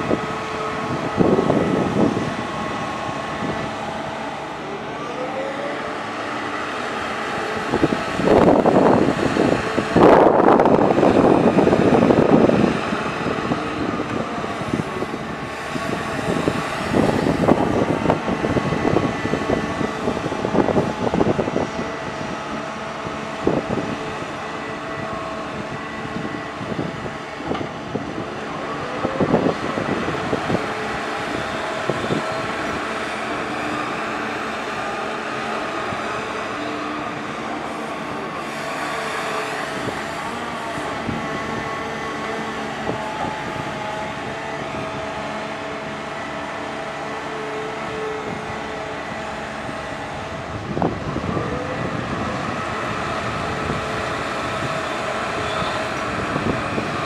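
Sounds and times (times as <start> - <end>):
excavator engine and hydraulics droning: 0.0 - 57.0.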